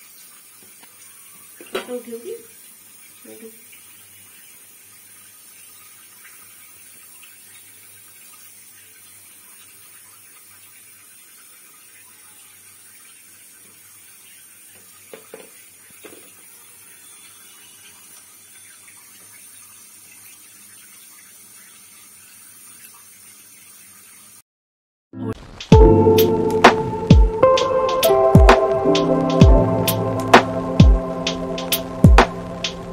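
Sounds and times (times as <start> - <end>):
faint steady hiss: 25.4 - 32.9
low hum: 25.7 - 32.9.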